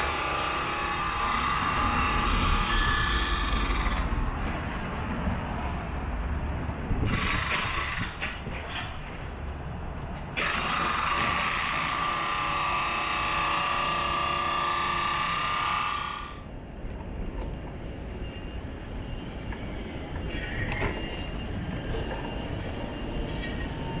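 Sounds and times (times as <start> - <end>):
power tool whining: 0.0 - 4.1, 10.4 - 16.4.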